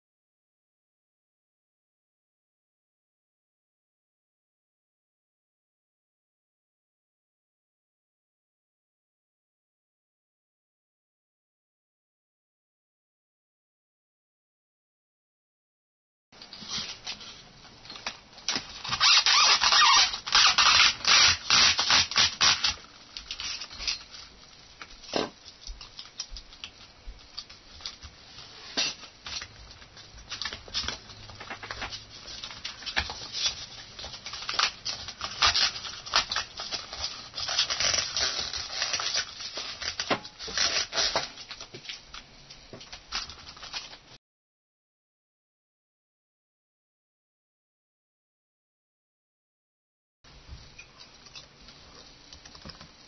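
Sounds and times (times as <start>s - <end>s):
hands rubbing and scraping plastic: 16.4s - 44.2s.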